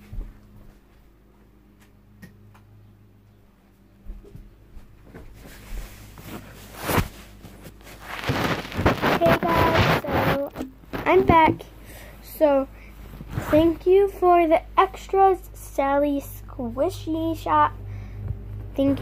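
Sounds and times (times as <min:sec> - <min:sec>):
phone rustling on bedding: 0:05.4 - 0:11.6
low hum: 0:16.4 - 0:19.0.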